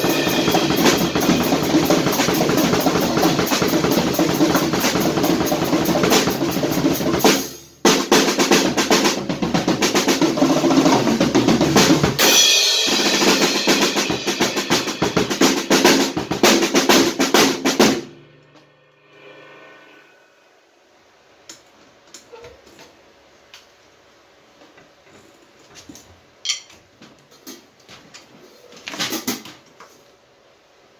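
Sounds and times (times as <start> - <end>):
drum kit groove: 0.0 - 19.6.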